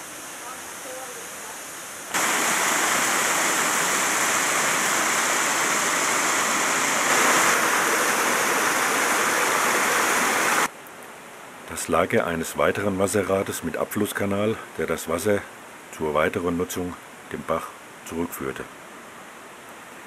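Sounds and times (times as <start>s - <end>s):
stream rushing over rocks: 0.0s - 10.7s.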